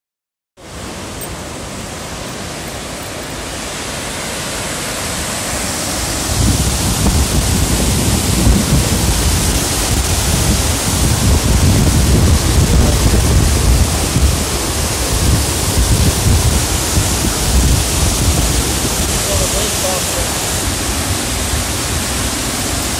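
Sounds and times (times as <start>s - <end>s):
rushing flood water: 0.6s - 22.9s
wind buffeting microphone: 6.0s - 22.9s.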